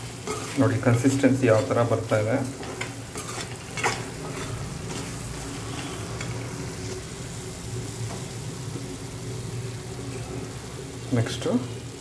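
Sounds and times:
meat sizzling in a pot: 0.0s - 12.0s
metal spoon scraping a pot: 0.1s - 6.5s.

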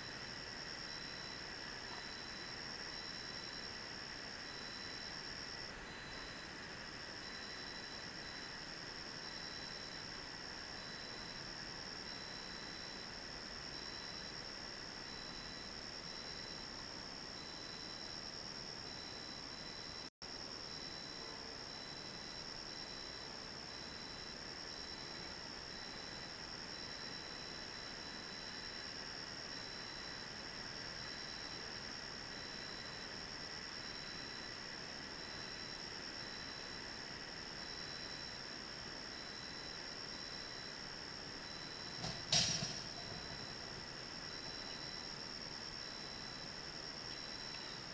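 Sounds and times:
crickets chirping: 0.0s - 47.9s
faint intermittent insect tone: 0.0s - 47.9s
insects buzzing: 0.0s - 47.9s
microphone hiss: 29.4s - 47.9s.

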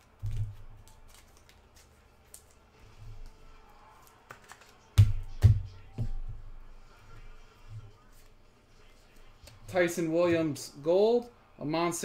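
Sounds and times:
cards clicking and rustling: 0.0s - 5.5s.

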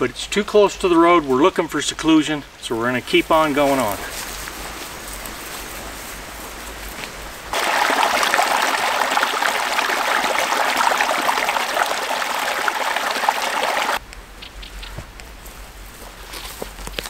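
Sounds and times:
outdoor background: 0.0s - 17.0s
creek splashing over rocks: 7.5s - 14.0s.

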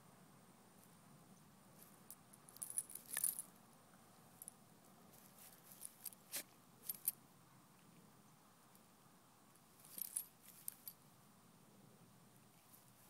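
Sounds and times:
dog collar tags jingling: 2.5s - 3.5s, 9.8s - 10.9s.

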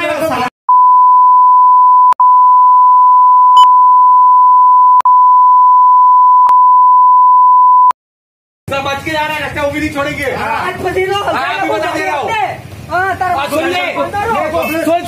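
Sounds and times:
censor bleep tone: 0.7s - 8.0s.

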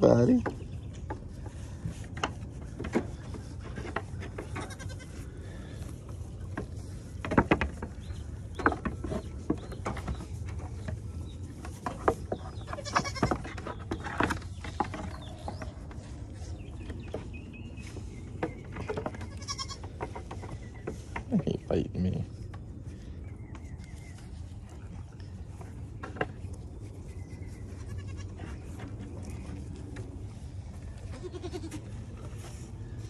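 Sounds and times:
goats bleating: 4.6s - 5.2s, 31.1s - 31.9s.

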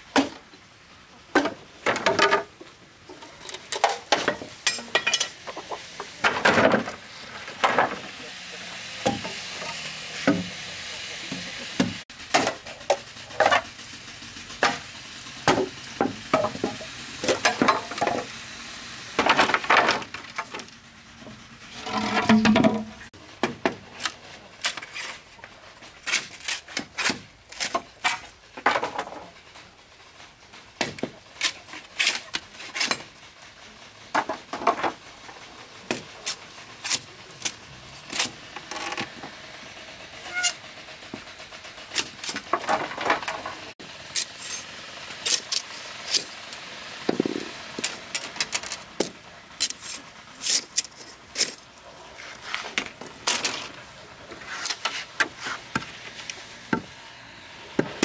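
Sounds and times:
machete splitting bamboo: 26.0s - 28.3s, 30.8s - 33.1s, 35.9s - 39.0s, 41.9s - 43.3s, 45.2s - 46.3s.

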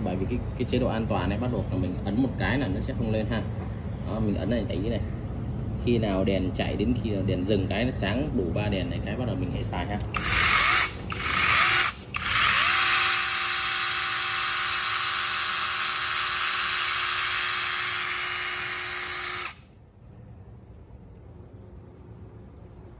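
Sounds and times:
electric chainsaw whirring: 10.2s - 19.7s.

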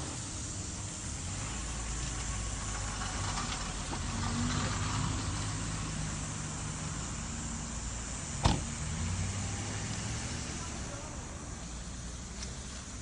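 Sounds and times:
car engine idling: 0.0s - 13.0s
car door slamming: 8.4s - 8.8s.

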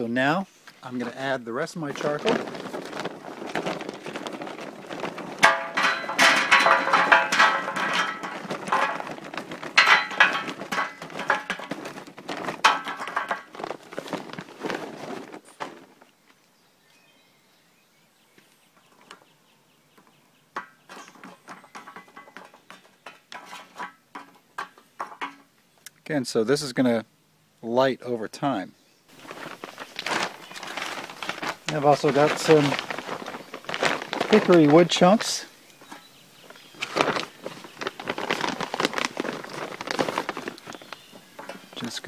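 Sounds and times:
charcoal pouring clattering rattle: 0.9s - 16.0s, 20.6s - 25.4s, 29.1s - 42.0s.

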